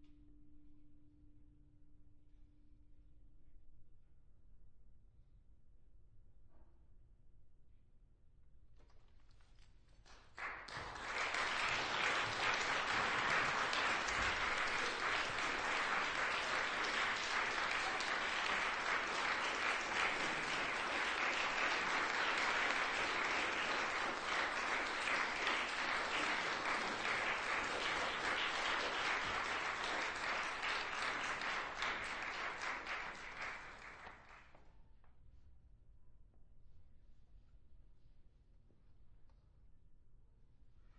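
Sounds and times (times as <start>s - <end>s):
audience applauding: 10.0s - 34.5s.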